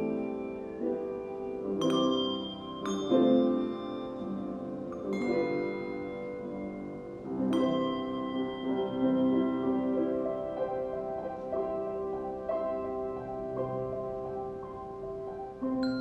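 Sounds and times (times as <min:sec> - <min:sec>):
handbells ringing a slow melody: 0:00.0 - 0:13.6, 0:15.5 - 0:16.0.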